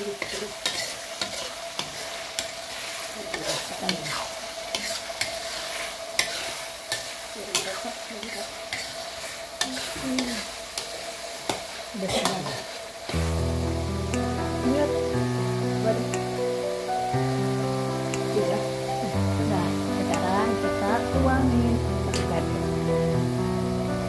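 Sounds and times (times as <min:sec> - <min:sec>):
metal spatula scraping wok: 0:00.0 - 0:14.8, 0:19.7 - 0:22.7
steady sizzle: 0:00.0 - 0:24.0
music: 0:13.2 - 0:24.0.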